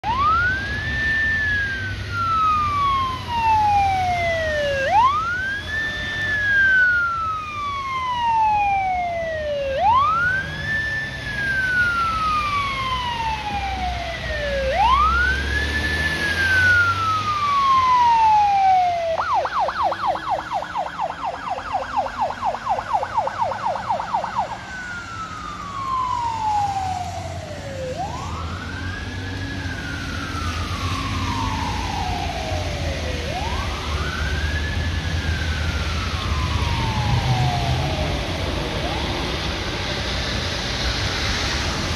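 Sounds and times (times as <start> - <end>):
fast siren yelp: 0.0 - 39.7
fire engine siren wailing: 0.0 - 41.9
traffic engine rumble: 0.0 - 41.9
tyre hiss on wet road: 39.3 - 41.9.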